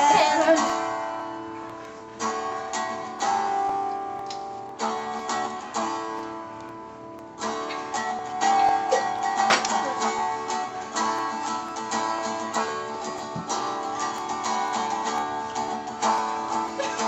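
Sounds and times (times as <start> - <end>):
guitar strumming chords: 0.0 - 17.0.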